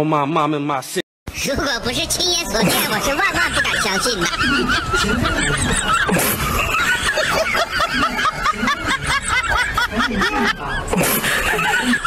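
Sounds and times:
high-pitched snickering laughter: 2.7s - 12.0s.

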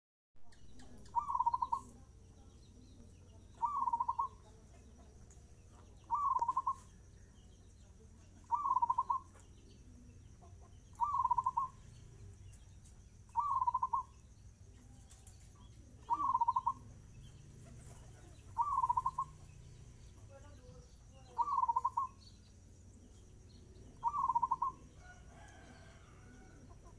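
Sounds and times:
dove cooing: 0.8s - 2.0s, 3.5s - 4.4s, 6.0s - 6.9s, 8.4s - 9.4s, 10.9s - 11.9s, 13.3s - 14.1s, 15.8s - 17.0s, 17.6s - 19.6s, 21.3s - 22.2s, 23.6s - 26.9s.

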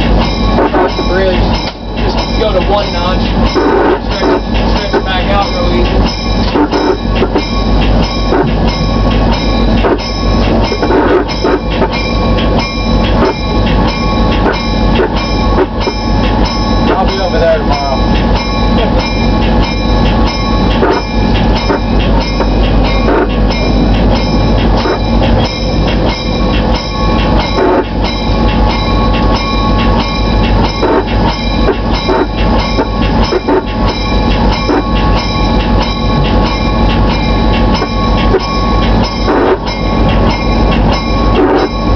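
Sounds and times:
steady tones: 0.0s - 41.9s
train rumbling: 0.0s - 41.9s
wheels knocking on rails: 0.0s - 41.9s.

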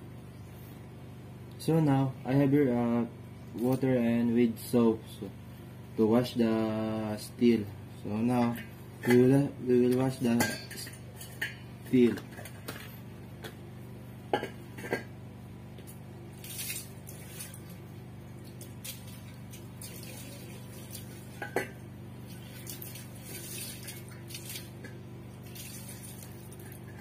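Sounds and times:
water pouring and splashing: 16.4s - 17.8s, 18.4s - 21.4s, 22.2s - 26.9s.

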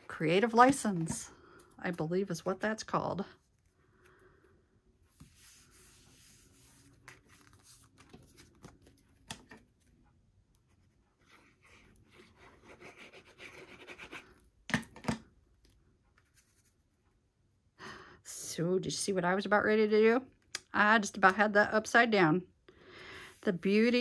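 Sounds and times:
cardstock sheets sliding and rubbing: 5.1s - 8.9s.

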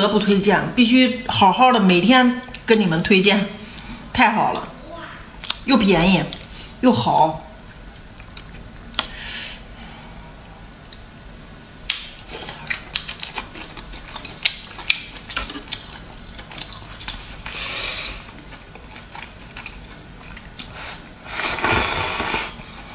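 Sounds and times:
chewing with crackling clicks: 7.7s - 9.1s, 10.7s - 11.1s, 11.8s - 20.8s
slurping noodles: 20.8s - 22.7s.

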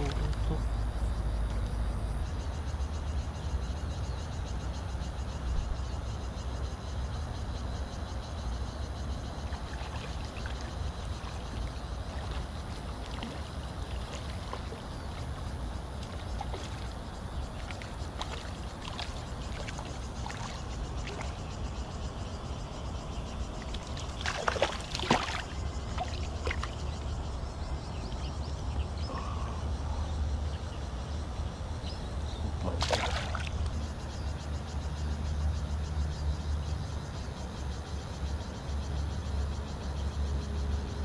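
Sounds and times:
fish splashing at the surface: 16.0s - 21.4s, 23.7s - 26.8s, 32.7s - 33.6s.

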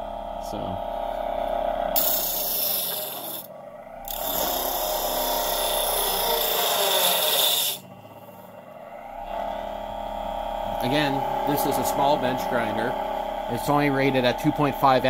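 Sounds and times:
grinder motor humming: 0.0s - 15.0s
grinder wheel rasping on wood: 2.0s - 8.5s.

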